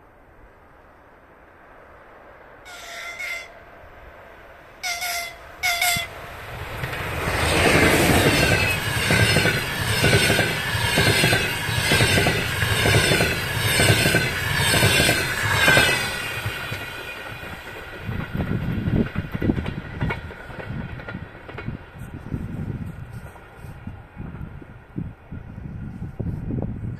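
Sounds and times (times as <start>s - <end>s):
train passing close: 0.0s - 26.7s
train horn blasts: 2.7s - 3.8s, 4.8s - 6.2s.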